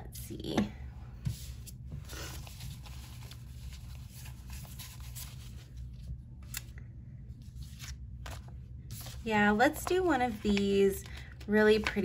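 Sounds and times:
paper sheets rustling: 1.2s - 6.7s, 7.4s - 12.0s.

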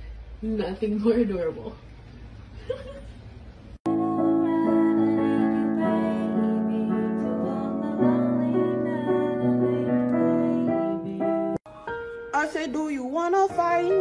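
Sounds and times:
digital piano chords: 3.9s - 14.0s.

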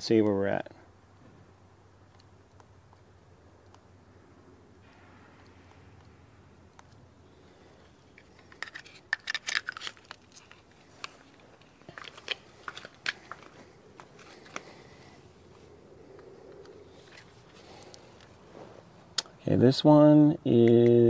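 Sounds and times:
handling clicks and rustles: 4.8s - 19.4s.

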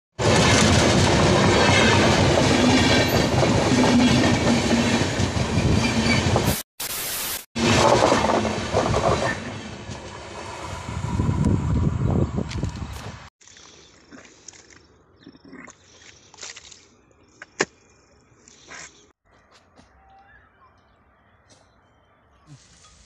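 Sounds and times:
wheels clattering over rails: 7.6s - 10.2s
train passing: 7.6s - 13.3s.

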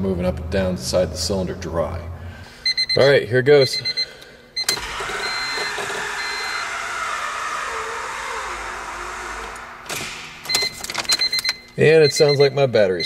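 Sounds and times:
high electronic beep: 2.7s - 6.8s
starter motor cranking: 4.6s - 11.5s.

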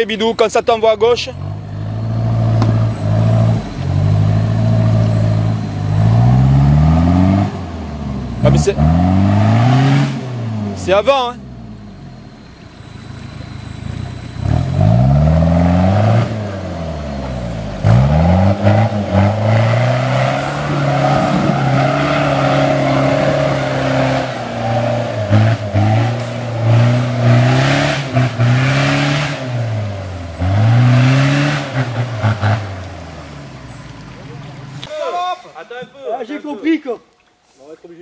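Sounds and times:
off-road vehicle engine revving: 0.0s - 35.6s.

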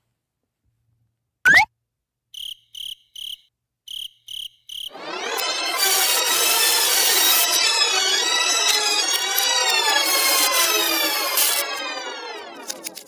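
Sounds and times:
cricket chirps: 2.3s - 5.0s.

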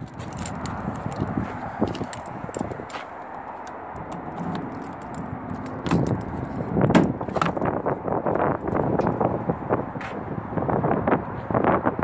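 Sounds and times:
keys jangling in a lock: 0.0s - 3.0s, 3.6s - 6.4s
tailgate latch clunks: 5.7s - 7.7s.

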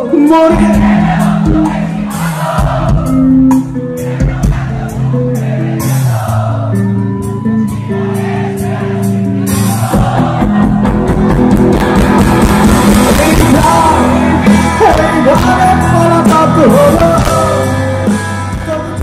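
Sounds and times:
drums: 0.0s - 19.0s
electric guitar: 2.7s - 19.0s
person singing: 13.0s - 19.0s.

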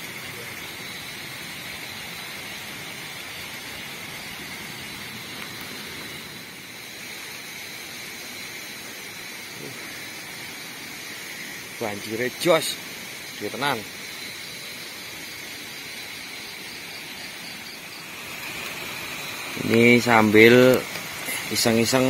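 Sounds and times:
river rushing: 15.2s - 22.0s.

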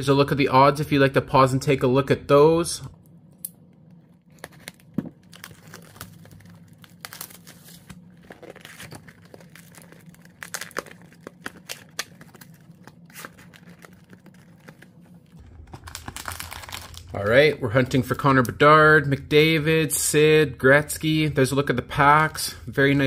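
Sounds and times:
plastic wrap crinkling and tearing: 4.2s - 18.5s
foil packs clicking and rustling: 4.3s - 17.2s.

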